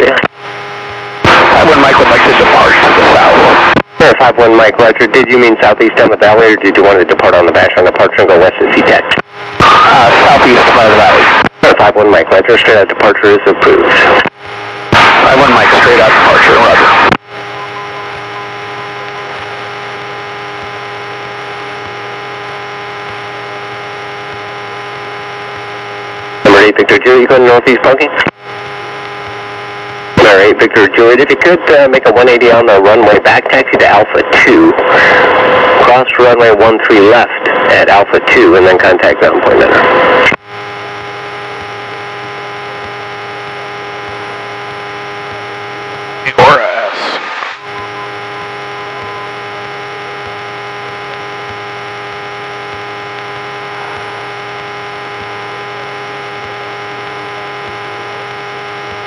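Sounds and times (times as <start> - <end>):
steady droning hum: 13.8 - 26.7, 28.4 - 30.2, 40.4 - 59.0.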